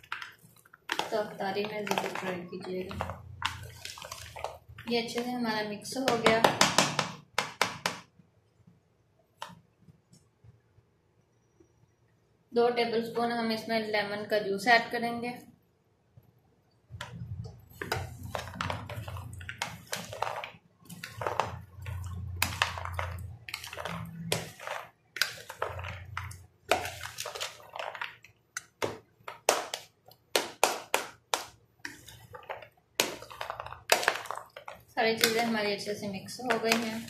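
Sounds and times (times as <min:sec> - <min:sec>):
hand squelching food in a bowl: 0:00.0 - 0:07.9, 0:16.9 - 0:37.0.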